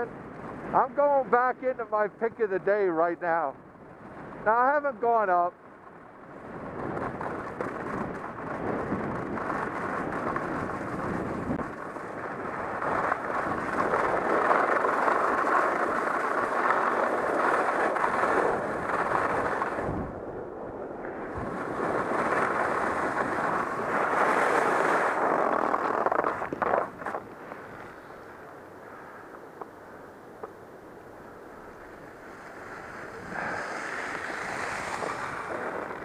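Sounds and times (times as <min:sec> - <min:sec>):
wind rushing over microphone: 0:00.0 - 0:36.0
skis scraping across snow: 0:06.5 - 0:20.1, 0:21.0 - 0:29.8, 0:31.1 - 0:36.0.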